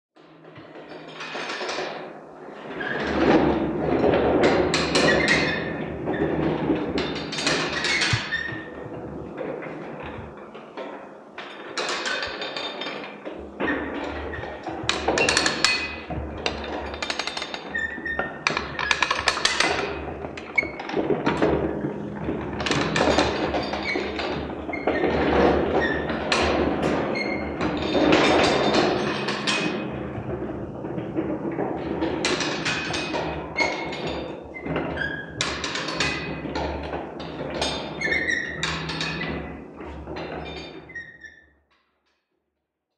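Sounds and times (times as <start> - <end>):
wooden cart knocking against metal drum: 3.1 - 10.8, 11.8 - 40.6.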